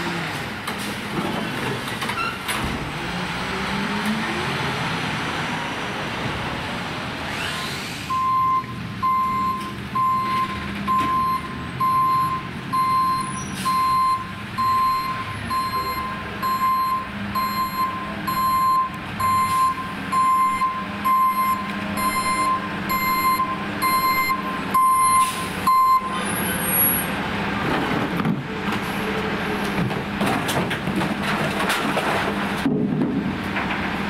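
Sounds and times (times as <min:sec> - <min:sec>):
diesel engine running: 0:00.0 - 0:34.0
truck reverse alarm beeping: 0:08.1 - 0:27.0
recycling clattering into hopper: 0:29.7 - 0:34.0.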